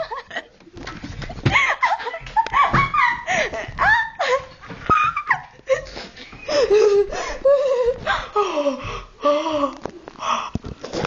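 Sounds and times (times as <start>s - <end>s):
people laughing and giggling: 0.0s - 8.4s.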